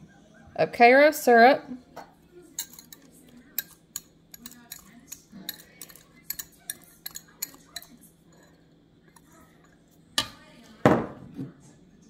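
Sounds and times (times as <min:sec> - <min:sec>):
whisk clinking against cup: 0:02.5 - 0:10.3.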